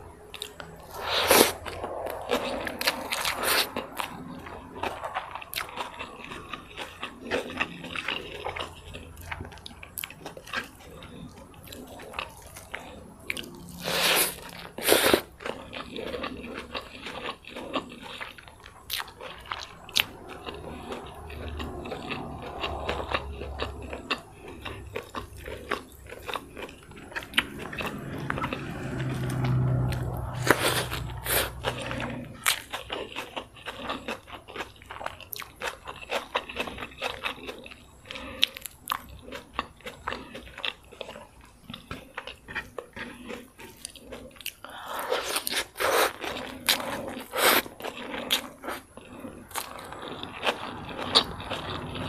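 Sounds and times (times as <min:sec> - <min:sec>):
chewing and crunching food: 0:00.0 - 0:52.0.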